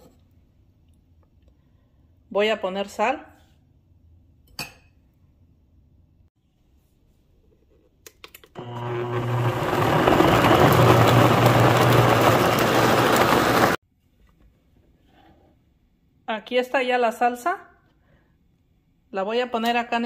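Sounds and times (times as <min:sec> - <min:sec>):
blender motor humming: 0:08.6 - 0:13.8.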